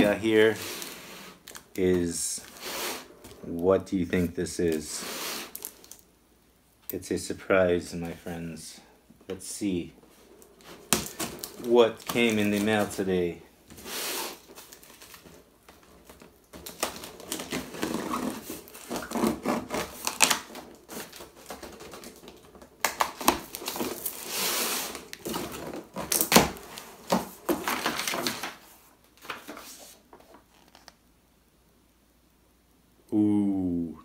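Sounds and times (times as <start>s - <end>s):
cardboard flaps scraping and creaking: 10.1s - 31.0s
packing tape ripping: 16.1s - 28.6s.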